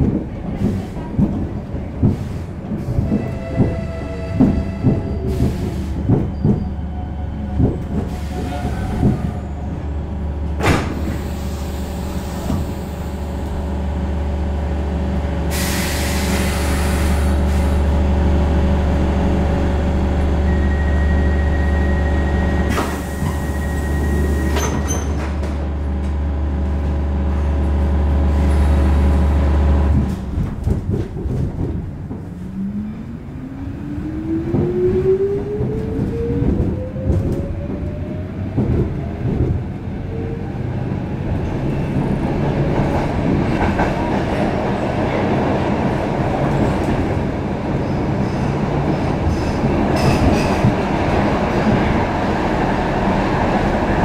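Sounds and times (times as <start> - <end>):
subway car low hum: 0.0 - 54.0.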